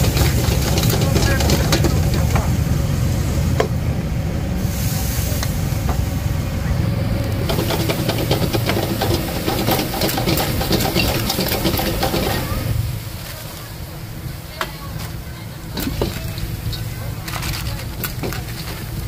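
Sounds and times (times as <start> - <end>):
spatula clattering on wok: 0.0 - 2.4, 7.5 - 12.5
food sizzling: 0.0 - 19.0
gas burner roar: 0.0 - 19.0.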